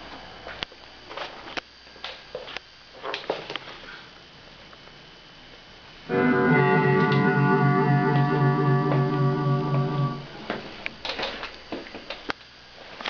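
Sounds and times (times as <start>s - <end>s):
guitar with vibe effect: 6.1s - 10.7s.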